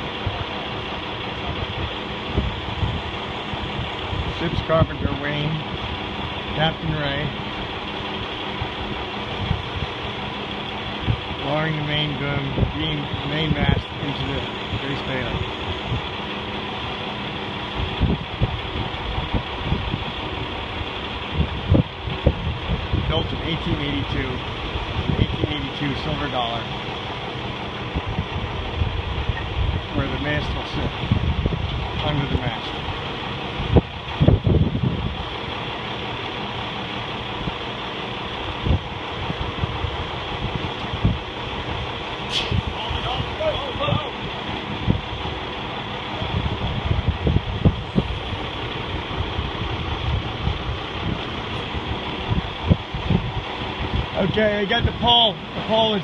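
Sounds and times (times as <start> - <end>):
engine idling: 0.0 - 56.0
outdoor background noise: 0.0 - 56.0
dull low thumps: 44.1 - 54.2.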